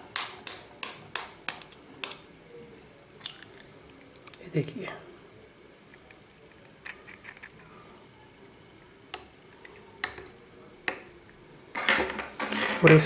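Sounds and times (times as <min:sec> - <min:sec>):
eggshells and spoon clicking: 0:03.2 - 0:04.4.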